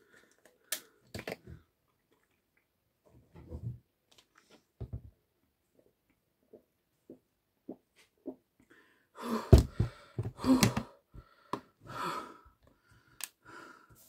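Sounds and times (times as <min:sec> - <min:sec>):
heavy gasping breaths: 0:08.7 - 0:14.0.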